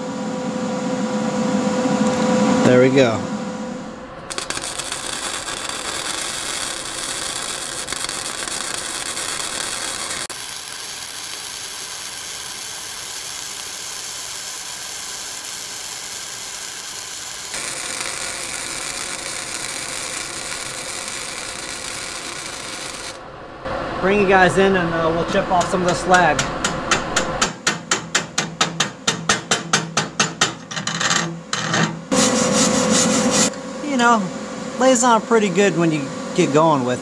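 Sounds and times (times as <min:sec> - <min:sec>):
welding arc crackle and hiss: 0:04.3 - 0:23.2.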